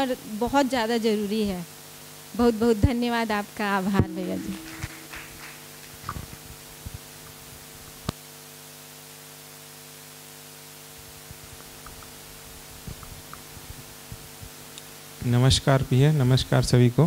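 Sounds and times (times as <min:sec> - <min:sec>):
electrical hum and hiss: 0:00.0 - 0:17.0.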